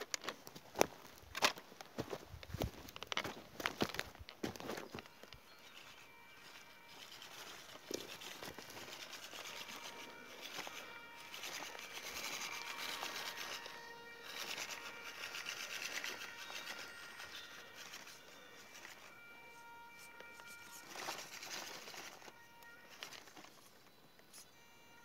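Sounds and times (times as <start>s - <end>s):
toy truck motor whining: 5.5s - 25.0s.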